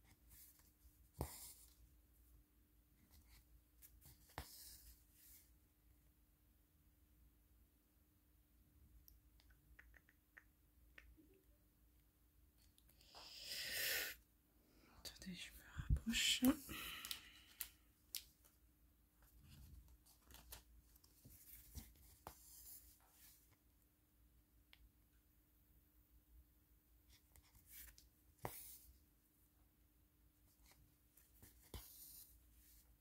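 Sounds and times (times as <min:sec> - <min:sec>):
small clicks and taps: 0:09.0 - 0:11.3.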